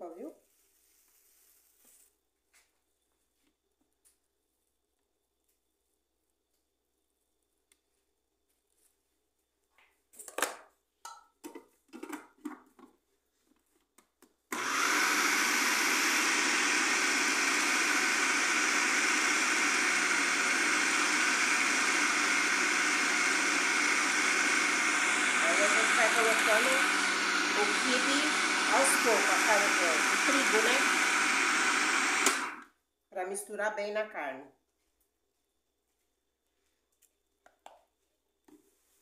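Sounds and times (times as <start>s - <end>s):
food processor motor running: 14.5s - 32.7s.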